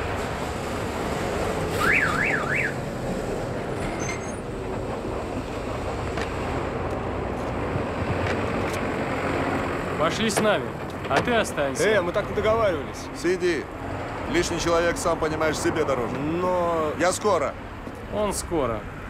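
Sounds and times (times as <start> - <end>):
cars driving past: 0.0 - 19.0
car alarm warble: 1.8 - 2.9.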